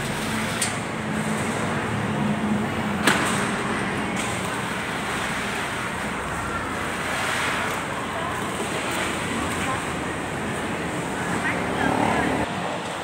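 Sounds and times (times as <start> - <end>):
busy market hall noise: 0.0 - 13.0.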